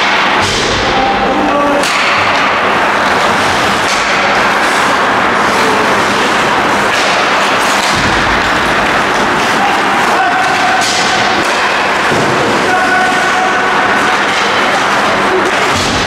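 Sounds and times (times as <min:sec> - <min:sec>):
ice hockey rink noise: 0:00.0 - 0:16.0
sharp knocks: 0:01.8 - 0:04.6, 0:06.8 - 0:12.7.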